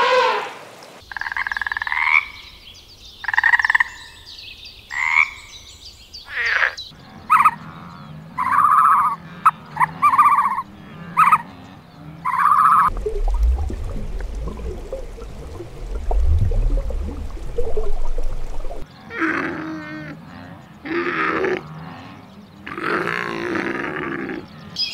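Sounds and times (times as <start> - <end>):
frog croaking: 1.0 - 2.5, 6.3 - 11.6
steady low hum: 12.9 - 18.8.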